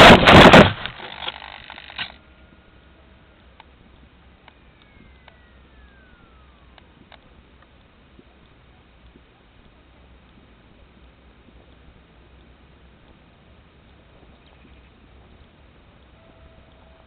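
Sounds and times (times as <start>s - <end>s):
outdoor background hiss: 0.0s - 17.0s
faint falling whistle: 4.6s - 6.8s.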